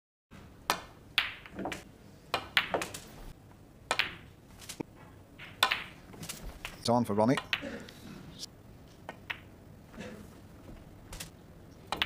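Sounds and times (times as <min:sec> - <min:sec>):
snooker balls clicking: 0:00.7 - 0:03.2, 0:03.9 - 0:04.8, 0:05.4 - 0:07.8, 0:08.9 - 0:09.6, 0:11.1 - 0:12.0.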